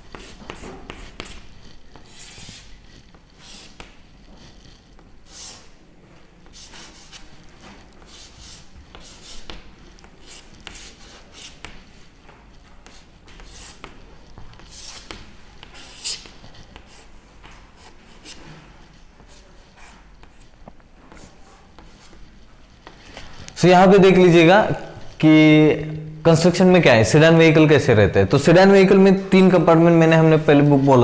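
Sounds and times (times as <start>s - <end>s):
chalk scratching on blackboard: 0.0s - 5.8s, 6.4s - 25.3s.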